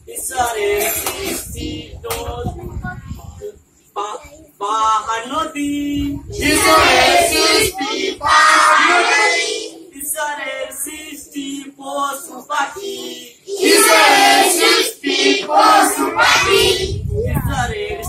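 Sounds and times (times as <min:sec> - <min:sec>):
children singing: 0:06.4 - 0:10.6, 0:12.3 - 0:16.9.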